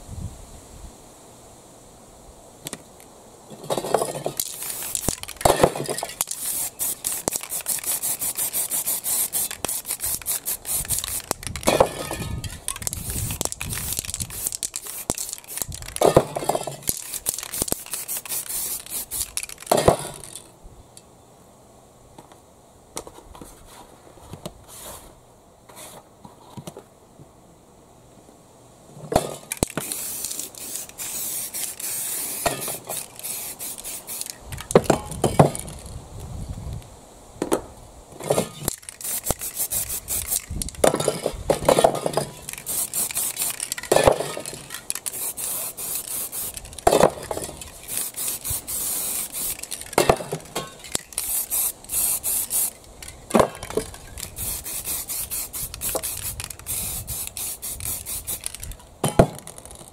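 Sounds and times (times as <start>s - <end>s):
spray paint cans hissing: 3.7s - 20.5s, 29.2s - 36.0s, 38.3s - 58.8s.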